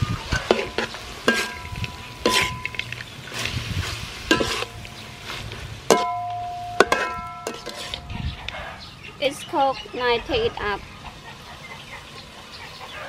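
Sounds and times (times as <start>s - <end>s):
food sizzling: 0.0s - 8.2s
spatula clanking against wok: 0.3s - 3.0s, 4.3s - 5.1s, 5.9s - 8.2s.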